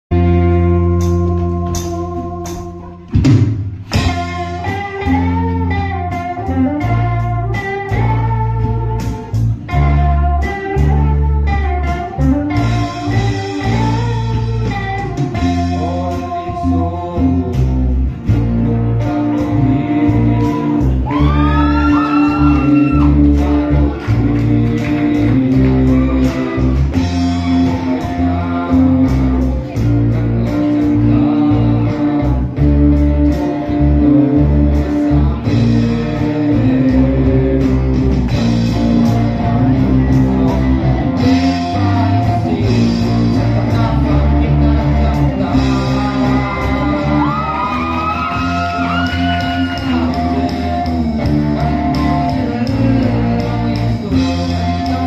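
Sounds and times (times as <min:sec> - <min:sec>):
live rock band playing: 0:00.1 - 0:55.0
drums hitting: 0:01.0 - 0:05.4
person singing: 0:03.9 - 0:55.0.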